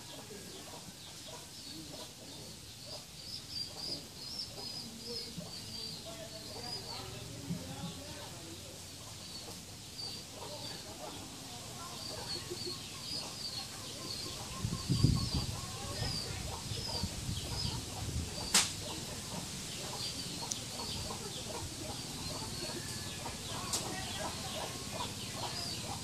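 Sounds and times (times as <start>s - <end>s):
chickens clucking: 0.0s - 26.0s
sharp click: 18.5s - 18.8s.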